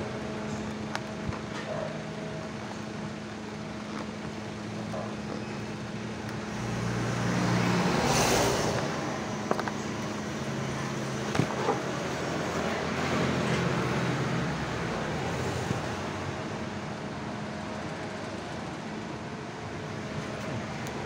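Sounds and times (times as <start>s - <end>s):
road traffic: 0.0s - 21.0s
steady low hum: 0.0s - 21.0s
vehicle passing: 6.4s - 16.4s.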